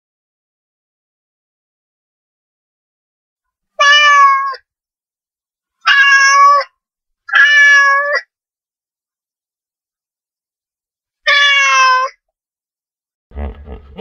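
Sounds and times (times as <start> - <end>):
cat meowing: 3.8 - 4.6, 5.8 - 6.7, 7.3 - 8.3, 11.3 - 12.2.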